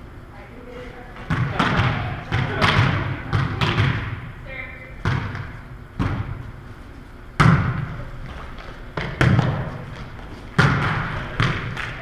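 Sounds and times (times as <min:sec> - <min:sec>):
volleyball smacks in gym: 0:01.2 - 0:04.3, 0:05.0 - 0:06.4, 0:07.4 - 0:12.0.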